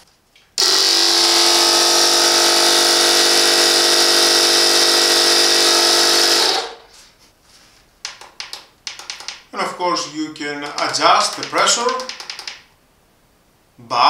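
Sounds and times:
air compressor running: 0.6 - 7.0.

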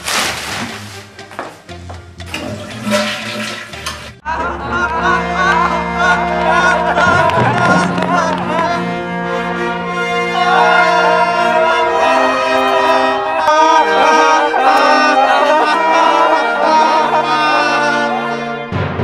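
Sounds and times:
orchestral music: 0.0 - 19.0
brass holding long chords: 4.2 - 19.0.

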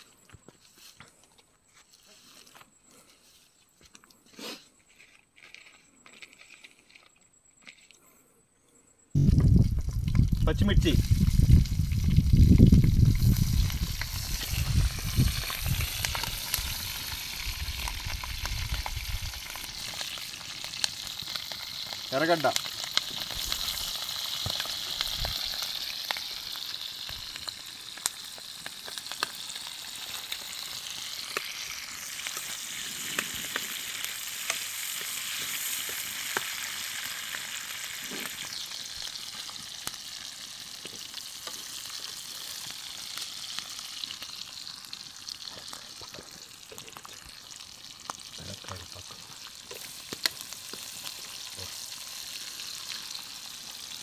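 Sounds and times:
oil clicks and pops: 9.2 - 20.2, 49.4 - 51.1
onions sizzling in hot oil: 9.2 - 54.0.

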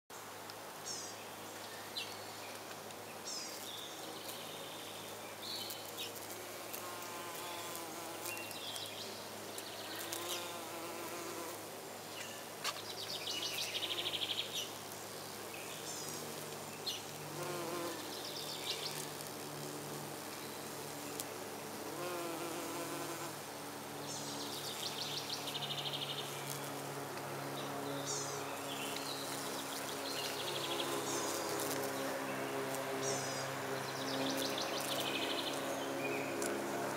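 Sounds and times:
insects buzzing: 2.5 - 36.9.

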